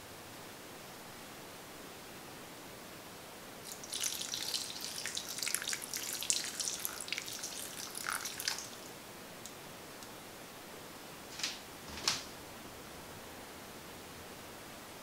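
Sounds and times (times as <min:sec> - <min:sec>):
milk pouring and splashing: 0:03.6 - 0:08.9.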